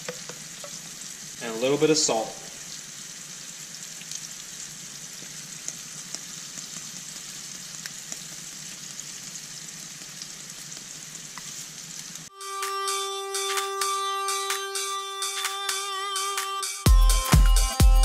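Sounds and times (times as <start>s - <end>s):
fish frying in oil: 0.0s - 12.3s.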